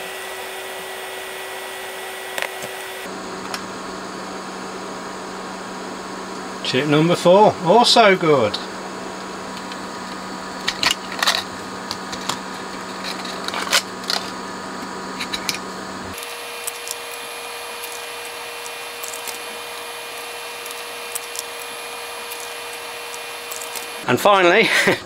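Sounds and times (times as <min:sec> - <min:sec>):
steady electrical hum: 0:00.0 - 0:25.0.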